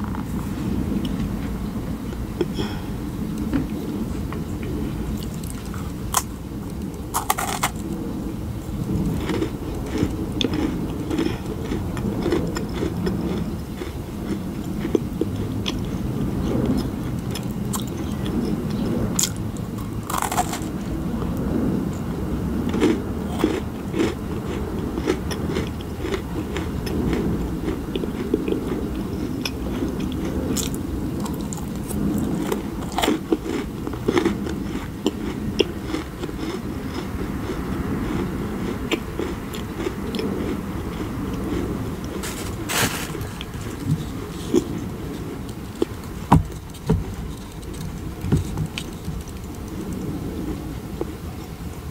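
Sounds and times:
wet chewing: 4.6 - 8.2, 8.8 - 21.6, 22.6 - 51.2.

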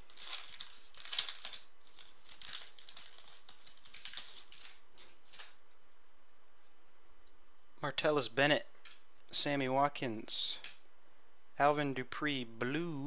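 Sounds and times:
foil wrapper tearing and crinkling: 0.0 - 5.6.

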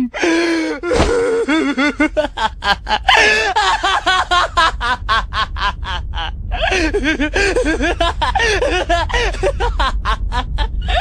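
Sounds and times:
young man laughing maniacally: 0.2 - 11.0.

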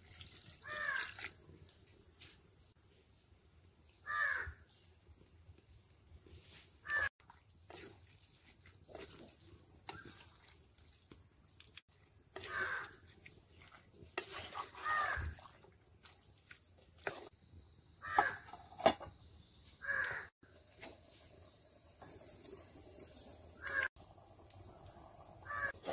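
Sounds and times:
crows cawing: 0.6 - 1.2, 4.0 - 4.6, 12.4 - 13.0, 14.7 - 15.4, 18.0 - 18.4, 19.8 - 20.3, 25.4 - 25.8.

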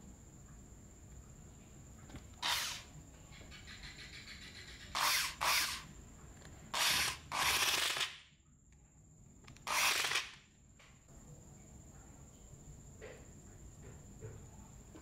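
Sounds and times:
electric screwdriver running: 2.4 - 2.8, 5.0 - 5.8, 6.8 - 8.1, 9.7 - 10.4.

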